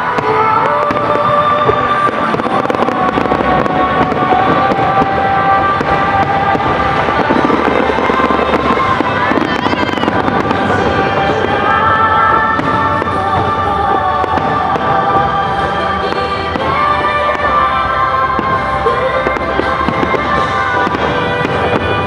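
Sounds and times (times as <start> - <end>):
firework shells bursting and crackling: 0.0 - 22.0
music playing: 0.0 - 22.0.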